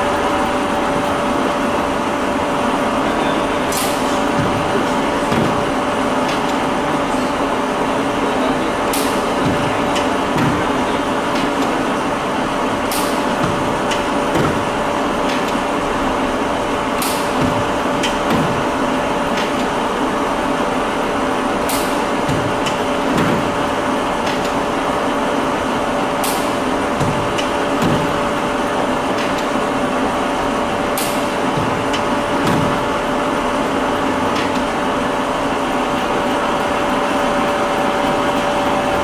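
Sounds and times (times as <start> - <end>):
lathe gear and motor hum: 0.0 - 39.0.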